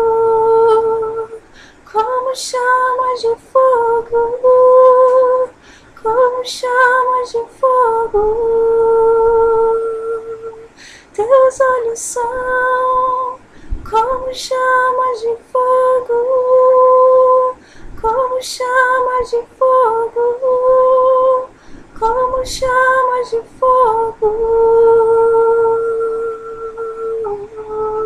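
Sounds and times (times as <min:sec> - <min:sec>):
woman singing unaccompanied: 0:00.0 - 0:28.0
quick breaths: 0:01.4 - 0:01.8, 0:05.6 - 0:06.0, 0:10.8 - 0:11.1, 0:13.4 - 0:13.8, 0:17.6 - 0:18.0, 0:21.5 - 0:22.0.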